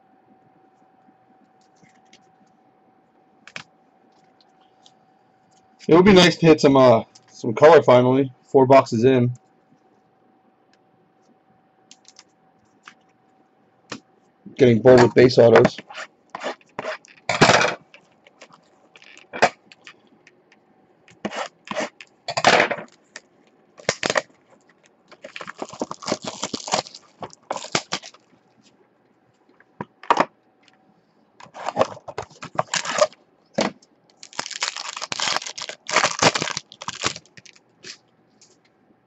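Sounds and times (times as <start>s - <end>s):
plastic wrap crinkling and tearing: 16.4s - 20.0s, 23.8s - 28.4s, 31.4s - 33.2s, 34.1s - 38.0s.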